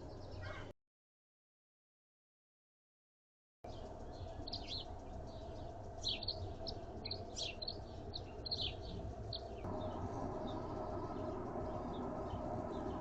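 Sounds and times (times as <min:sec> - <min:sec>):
birds chirping: 0:00.0 - 0:00.7, 0:03.7 - 0:13.0.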